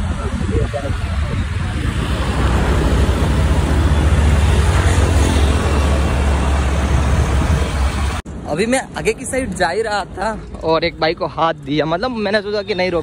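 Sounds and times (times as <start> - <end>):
wind rush: 0.0 - 8.4
motorcycle road noise: 0.0 - 13.0.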